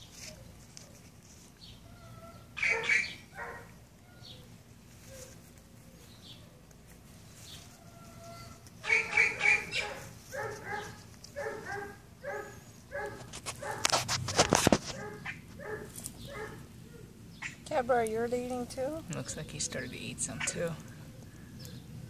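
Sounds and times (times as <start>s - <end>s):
short pitched animal calls: 7.9s - 10.0s.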